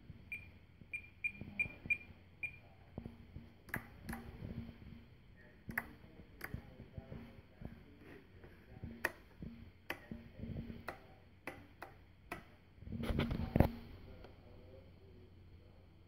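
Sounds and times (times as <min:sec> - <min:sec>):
sharp clicks and light knocks: 0:03.0 - 0:04.7, 0:05.7 - 0:07.7, 0:08.8 - 0:14.3.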